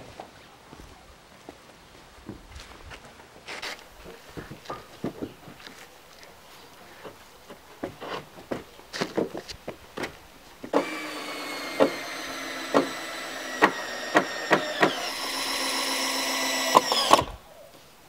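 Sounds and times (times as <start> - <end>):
timber knocking: 10.7 - 17.2
power tool motor running: 10.7 - 17.4.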